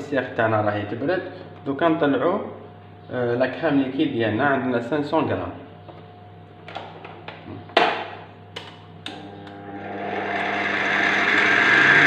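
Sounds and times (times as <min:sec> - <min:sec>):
mixer motor whirring: 0:09.1 - 0:12.0.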